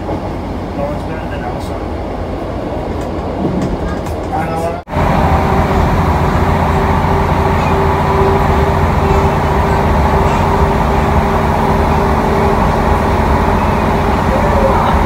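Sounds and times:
train rumbling at speed: 0:00.0 - 0:15.0.

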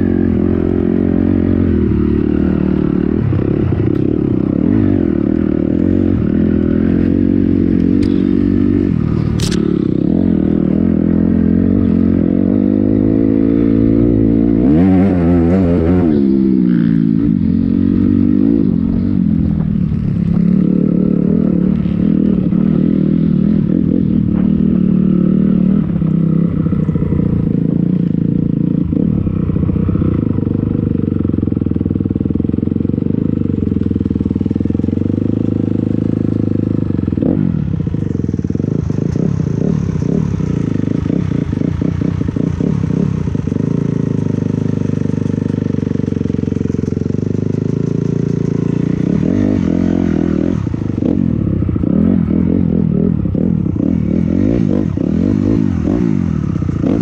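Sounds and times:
dirt bike engine running: 0:00.0 - 0:57.0
bike rattling over bumps: 0:19.5 - 0:51.8.

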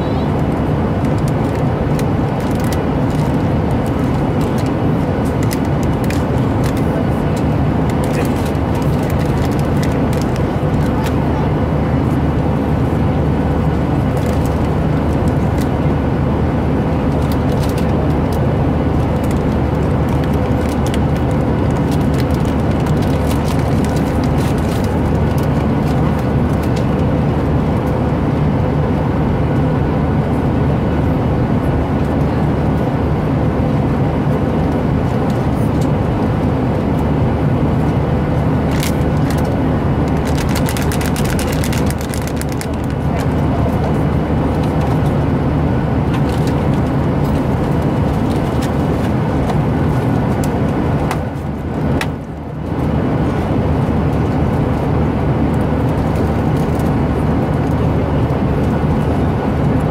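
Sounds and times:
airliner engine and airflow roar: 0:00.0 - 0:59.9
snack bag crinkling: 0:40.2 - 0:43.3.

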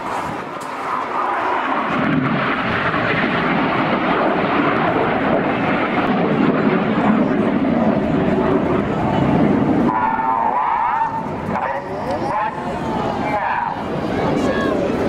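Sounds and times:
jet engine roar: 0:00.0 - 0:15.0.

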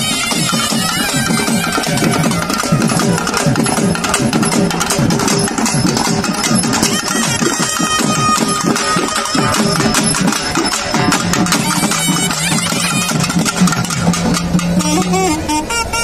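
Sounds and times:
reed horn melody: 0:00.0 - 0:04.1, 0:11.2 - 0:16.0
fast drumming: 0:00.0 - 0:15.5.

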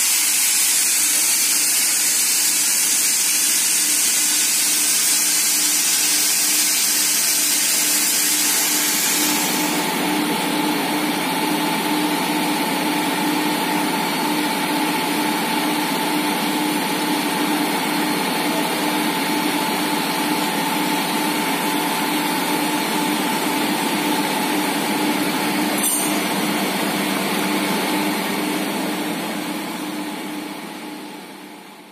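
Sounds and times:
loud airy hiss: 0:00.0 - 0:09.9
industrial machine hum: 0:03.4 - 0:31.9.

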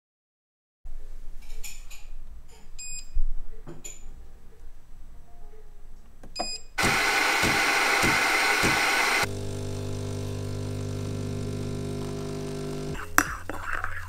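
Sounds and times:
coffee machine beep: 0:06.4 - 0:13.0
brewing pump humming: 0:06.8 - 0:13.0
grinder grinding beans: 0:06.8 - 0:13.0.

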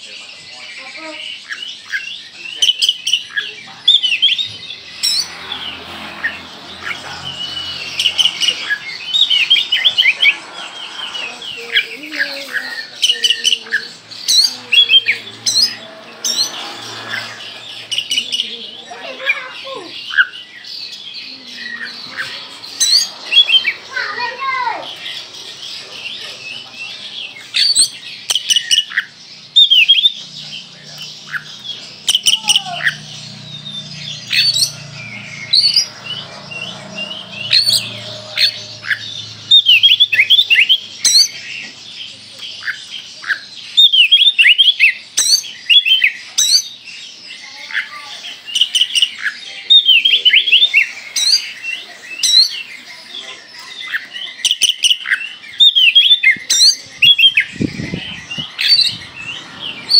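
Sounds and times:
bird singing whistled notes: 0:25.8 - 0:47.2, 0:48.4 - 0:59.9.

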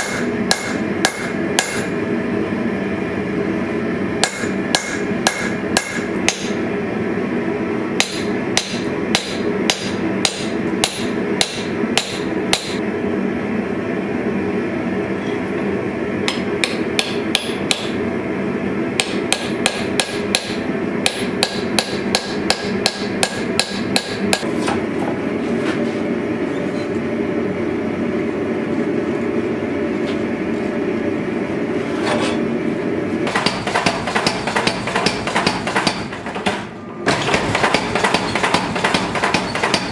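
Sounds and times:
hammer striking steel on anvil: 0:00.0 - 0:02.0, 0:04.2 - 0:06.6, 0:08.0 - 0:12.8, 0:16.3 - 0:18.0, 0:19.0 - 0:24.5, 0:33.3 - 0:39.9
machine hum: 0:00.0 - 0:39.9
power hammer blows: 0:33.3 - 0:39.9.

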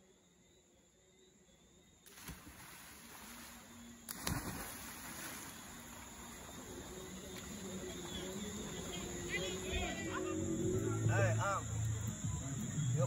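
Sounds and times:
insects chirping: 0:00.0 - 0:13.0
river water splashing: 0:02.0 - 0:10.6.

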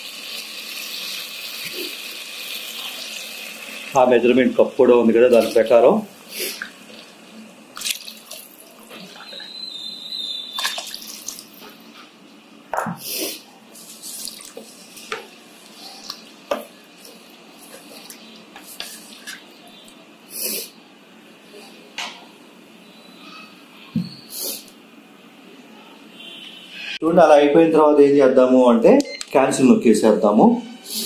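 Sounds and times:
water pouring into a pot: 0:07.8 - 0:09.3.

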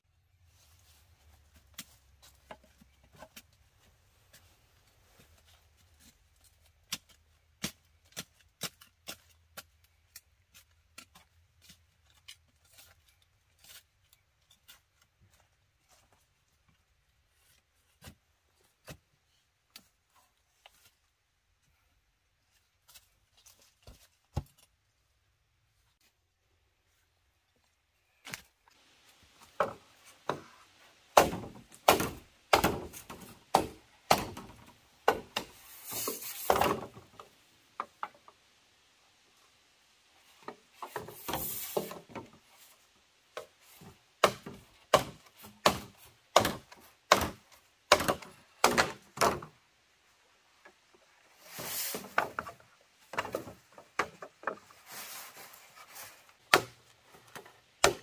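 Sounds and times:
wood chopping blows: 0:31.1 - 0:37.0, 0:44.2 - 0:49.5
scraping sounds: 0:35.4 - 0:36.8, 0:51.3 - 0:52.6, 0:54.6 - 0:56.4.

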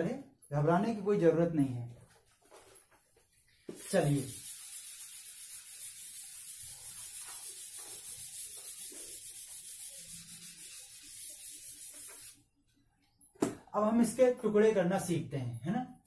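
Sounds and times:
eraser scrubbing whiteboard: 0:03.7 - 0:12.4.

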